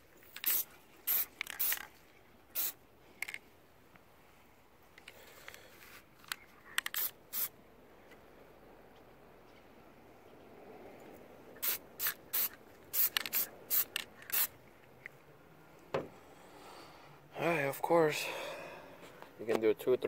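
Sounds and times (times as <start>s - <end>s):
aerosol can spraying: 0.3s - 1.9s, 2.6s - 2.8s, 6.9s - 7.5s, 11.6s - 14.5s.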